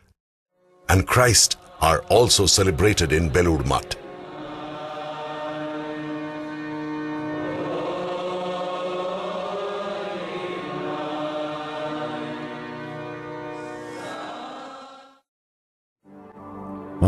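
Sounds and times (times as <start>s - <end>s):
group devotional chanting: 1.2s - 13.1s, 13.8s - 15.2s.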